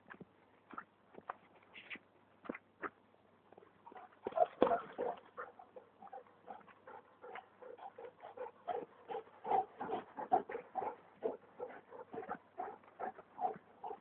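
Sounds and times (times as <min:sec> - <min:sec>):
rapid panting breaths: 0:05.0 - 0:14.0.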